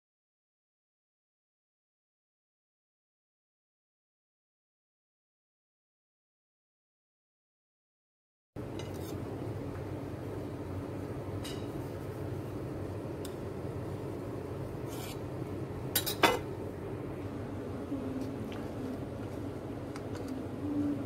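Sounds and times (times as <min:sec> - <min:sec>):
background hum: 0:08.6 - 0:21.0.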